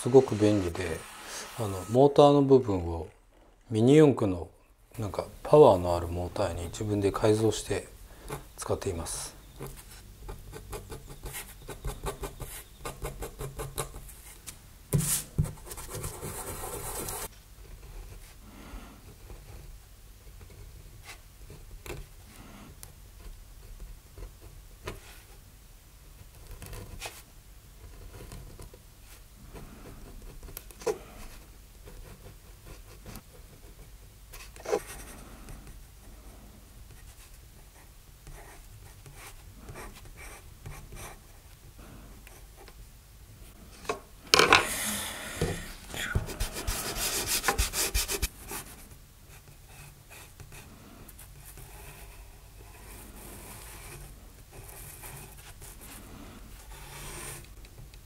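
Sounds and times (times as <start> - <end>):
eraser rubbing on paper: 0.0 - 2.4, 46.1 - 48.8
pen nib scratching on paper: 46.2 - 48.7.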